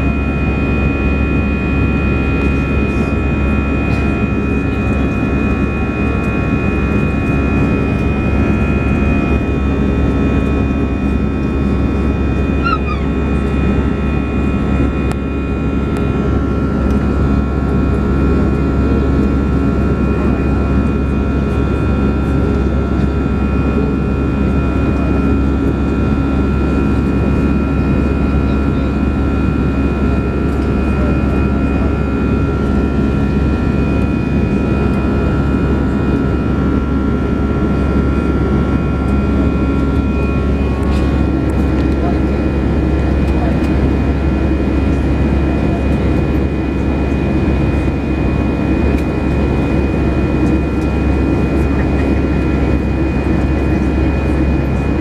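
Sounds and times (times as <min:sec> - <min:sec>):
airplane cabin jet engine noise: 0:00.0 - 0:55.0.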